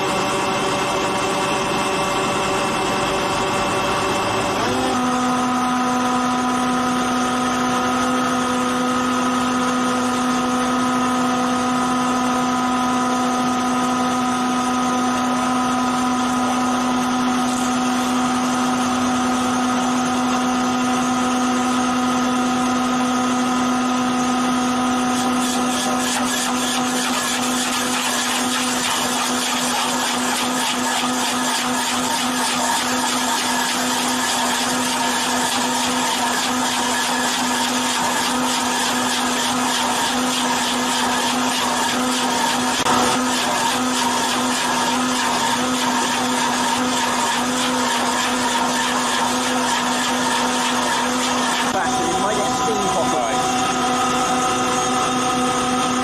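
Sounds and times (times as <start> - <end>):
stump auger whining hum: 0.0 - 56.0
grinding of wood into chips: 24.8 - 56.0.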